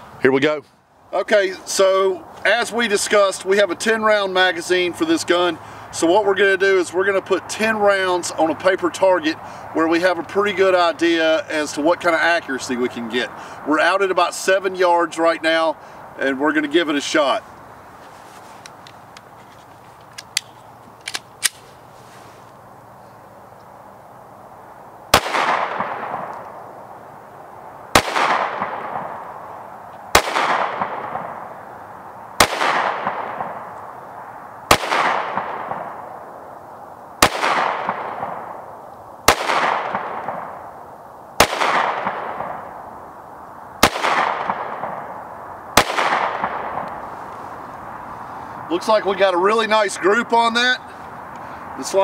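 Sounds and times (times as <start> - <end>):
pistol slide locking back: 20.0 - 21.6
pistol shots with echo: 25.1 - 26.3, 28.0 - 29.2, 30.1 - 31.4, 32.4 - 33.7, 34.7 - 36.0, 37.2 - 38.6, 39.3 - 40.6, 41.4 - 42.6, 43.8 - 45.1, 45.8 - 46.9.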